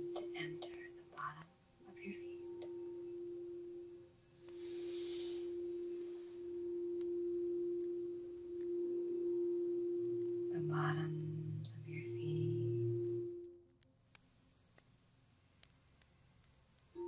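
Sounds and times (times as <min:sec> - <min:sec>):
singing bowl ringing tone: 0:00.0 - 0:01.1, 0:01.8 - 0:13.7
low hum: 0:00.0 - 0:13.8.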